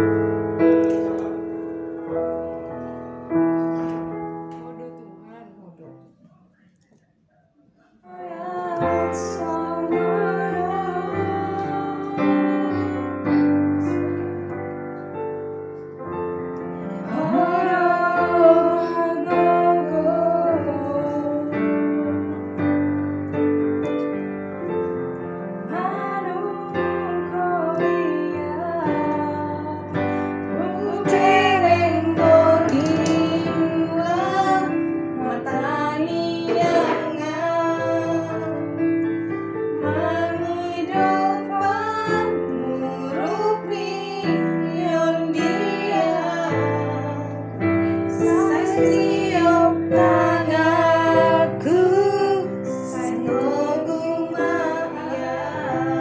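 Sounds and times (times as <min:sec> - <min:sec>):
digital piano chords: 0:00.0 - 0:05.8, 0:08.1 - 0:56.0
woman singing: 0:08.0 - 0:14.3, 0:17.0 - 0:22.7, 0:25.7 - 0:38.8, 0:39.8 - 0:56.0.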